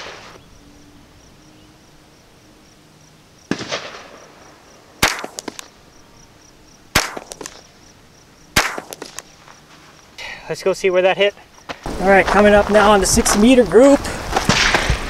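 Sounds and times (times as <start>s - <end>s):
dull gunshot report: 3.5s - 4.2s, 5.0s - 5.7s, 6.9s - 7.6s, 8.6s - 9.2s
rifle shots with echoes: 3.5s - 4.2s, 5.0s - 5.7s, 6.9s - 7.6s, 8.6s - 9.2s.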